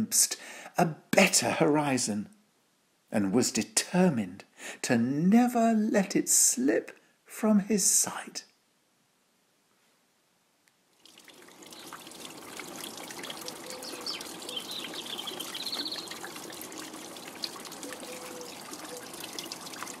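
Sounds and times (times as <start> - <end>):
water trickling: 10.9 - 20.0.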